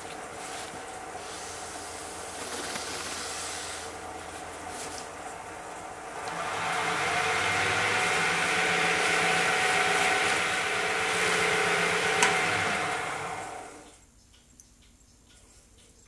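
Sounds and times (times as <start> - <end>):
wood lathe motor whine: 0.0 - 13.8
paper towel rubbing on wood: 0.4 - 5.2.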